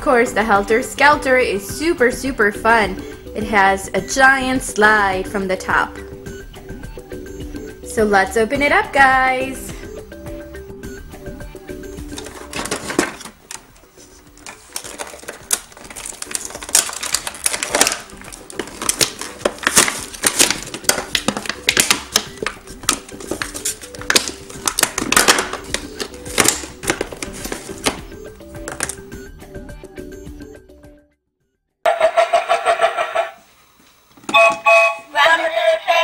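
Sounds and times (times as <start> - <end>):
light background music: 0.0 - 31.2
plastic pieces clicking and rattling: 14.4 - 28.0.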